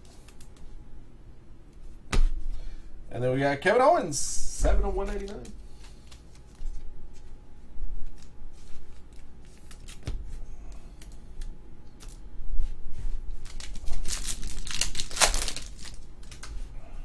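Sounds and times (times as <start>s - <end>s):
cards clicking and rustling: 5.0s - 6.8s, 8.0s - 10.2s, 13.4s - 16.6s
plastic sleeve crinkling: 5.0s - 6.9s, 8.0s - 10.2s, 13.3s - 16.6s.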